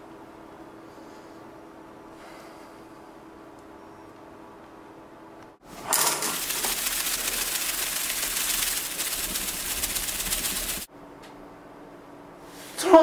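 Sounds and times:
loud steady rushing hiss: 0:06.0 - 0:10.9.

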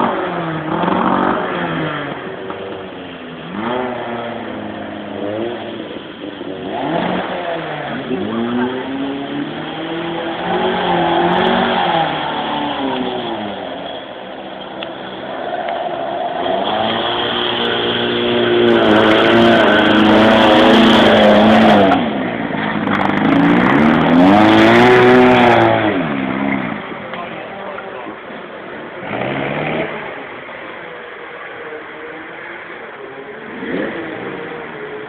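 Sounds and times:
car engine revving: 0:00.0 - 0:27.4, 0:28.1 - 0:30.8, 0:33.4 - 0:35.0.

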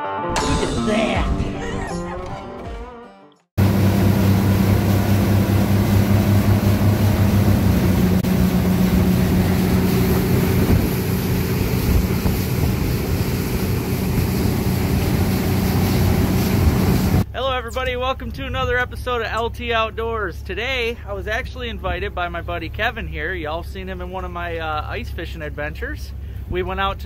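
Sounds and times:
wind on microphone: 0:03.6 - 0:17.2
outboard motors running: 0:03.6 - 0:17.3.

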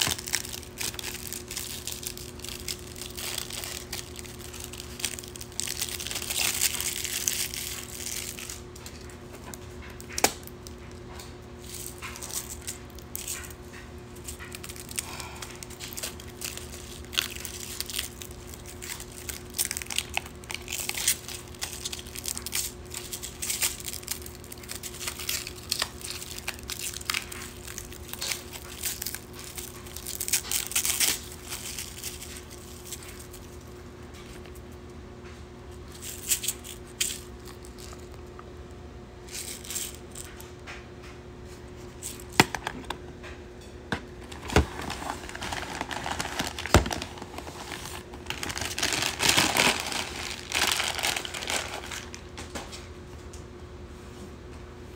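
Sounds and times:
plastic wrapping crinkling: 0:00.0 - 0:10.9, 0:11.6 - 0:34.6, 0:35.9 - 0:38.4, 0:39.3 - 0:40.4, 0:44.1 - 0:52.5.

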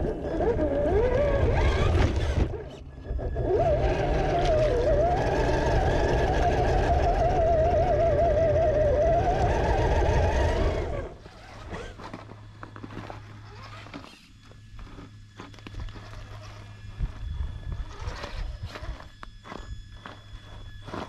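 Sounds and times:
rc car motor whining: 0:00.0 - 0:21.0.

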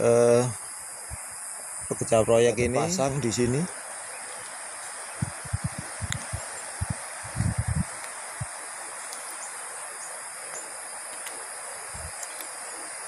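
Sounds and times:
outdoor background hiss: 0:00.0 - 0:13.0
soft low thumps: 0:05.2 - 0:08.5.

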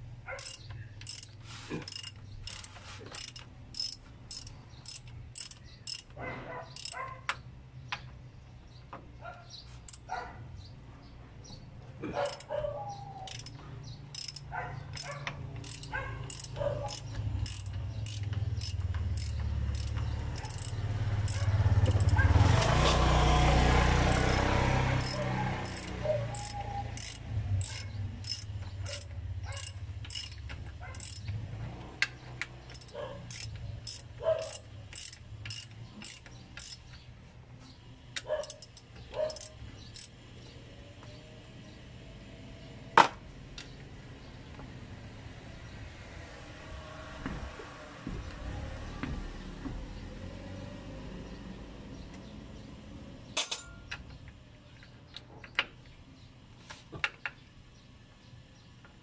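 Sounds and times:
ratchet wrench clicking: 0:00.3 - 0:06.2, 0:06.8 - 0:07.4, 0:09.8 - 0:10.1, 0:12.2 - 0:12.5, 0:13.2 - 0:23.0, 0:24.0 - 0:37.0, 0:38.1 - 0:40.1.

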